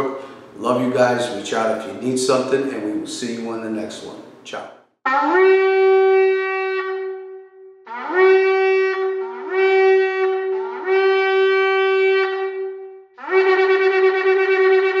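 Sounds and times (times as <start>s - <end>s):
horn long calls: 7.9s - 15.0s.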